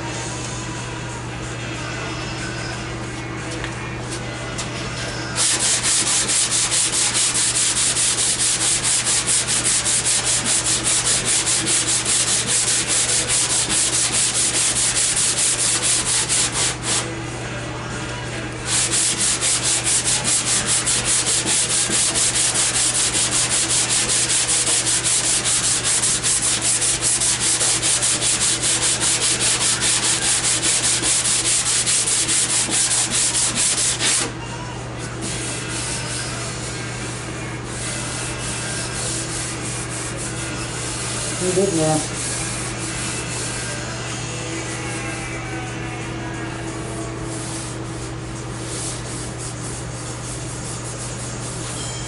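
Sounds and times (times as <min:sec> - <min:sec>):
sandpaper scratching on steel: 0:05.4 - 0:17.1, 0:18.7 - 0:34.3.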